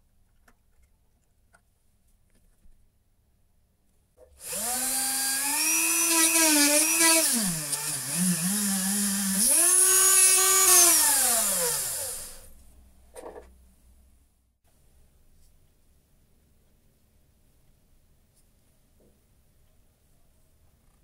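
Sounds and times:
drill bit cutting brass: 0:04.4 - 0:12.5
electric drill motor whining: 0:04.4 - 0:12.5.

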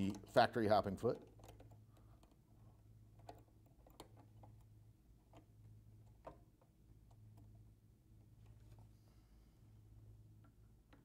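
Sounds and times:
low steady hum: 0:00.0 - 0:11.0
small metal clicks: 0:01.0 - 0:07.6.

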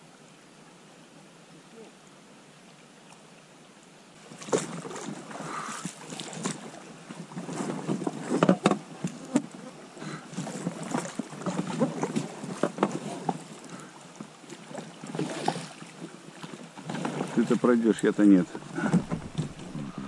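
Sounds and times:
boat splashing and knocking: 0:04.3 - 0:09.7, 0:10.3 - 0:20.0.

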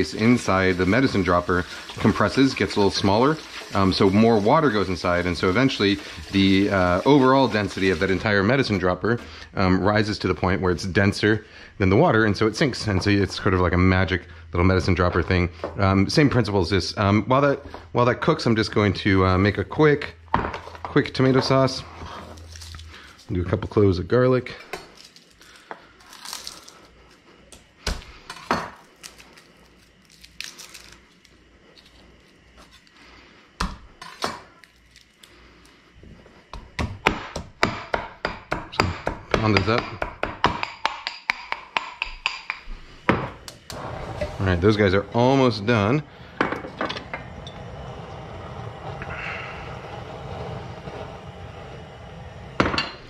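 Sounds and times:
water boiling and bubbling: 0:00.0 - 0:09.0, 0:43.5 - 0:53.0.

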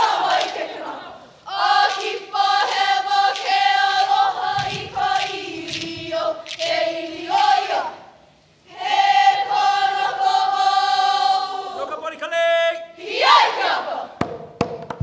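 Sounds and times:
group of voices chanting: 0:13.0 - 0:14.2.

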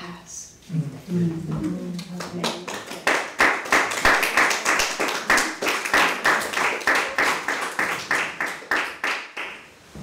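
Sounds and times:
small group clapping: 0:01.9 - 0:09.7.

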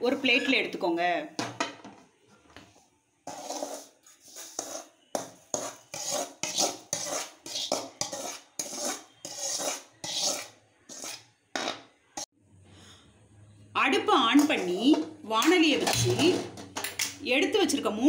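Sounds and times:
metal spoon scraping metal pan: 0:03.2 - 0:12.3, 0:14.1 - 0:17.1.

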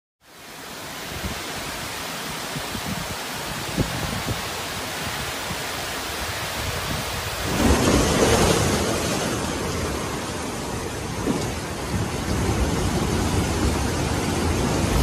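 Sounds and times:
wind and rain: 0:00.2 - 0:15.0
waves breaking on shore: 0:00.3 - 0:15.0
gusting wind on microphone: 0:00.8 - 0:15.0.

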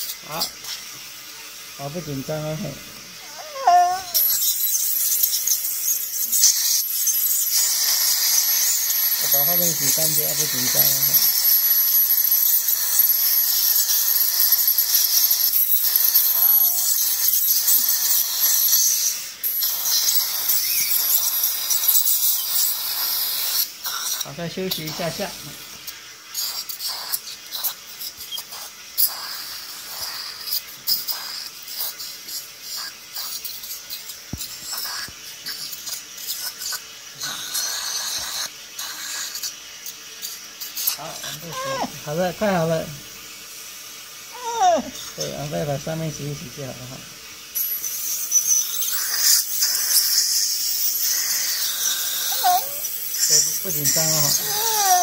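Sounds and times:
dental scaler whine: 0:00.0 - 0:55.0
saliva ejector hissing: 0:00.0 - 0:55.0.

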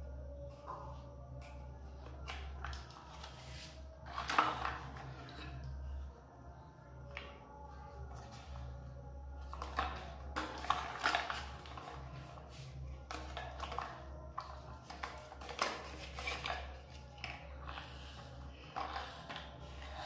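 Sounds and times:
plastic toy clattering: 0:02.2 - 0:05.8, 0:13.0 - 0:20.0.

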